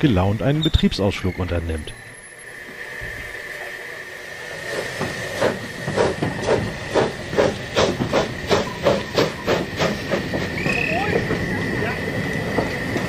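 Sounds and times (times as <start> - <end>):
steam hissing: 0.0 - 13.0
steam locomotive chuffing: 0.0 - 13.0.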